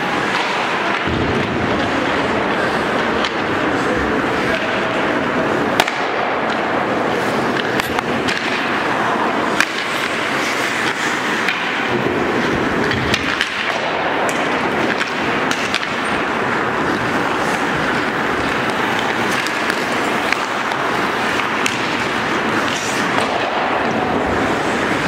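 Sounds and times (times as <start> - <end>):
hockey sticks and puck clacking: 0.0 - 25.0
skate blades scraping on ice: 0.0 - 25.0.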